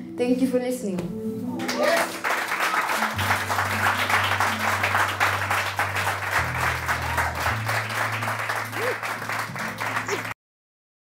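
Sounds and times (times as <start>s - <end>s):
audience applauding: 1.6s - 10.4s.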